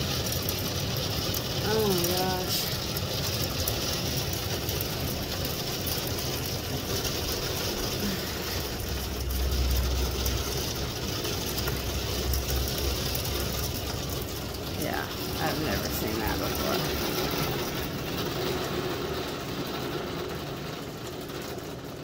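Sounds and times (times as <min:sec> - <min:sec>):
heavy rain and hail: 0:00.0 - 0:22.0
low rumble: 0:04.2 - 0:20.4.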